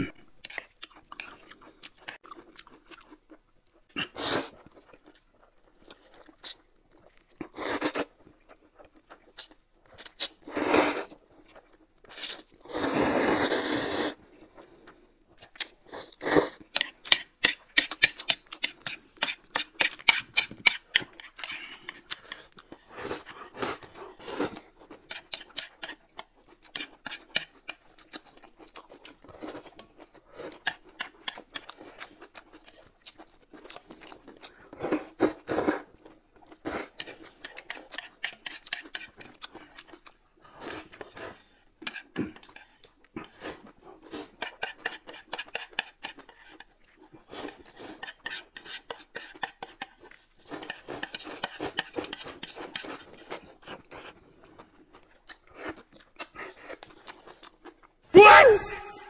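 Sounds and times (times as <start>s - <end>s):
crunchy chewing: 0.3s - 13.0s
slurping: 3.9s - 4.8s, 9.2s - 11.2s, 12.0s - 25.7s.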